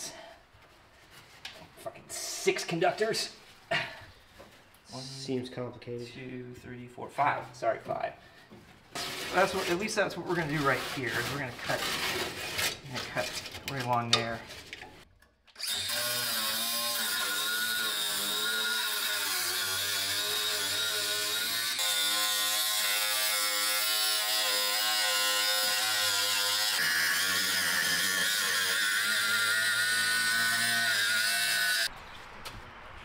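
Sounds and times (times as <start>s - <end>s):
angle grinder cutting steel: 15.6s - 31.9s.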